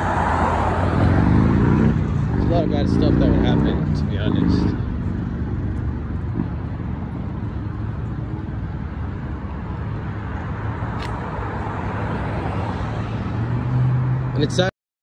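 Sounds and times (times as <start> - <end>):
traffic rumble: 0.0 - 14.7.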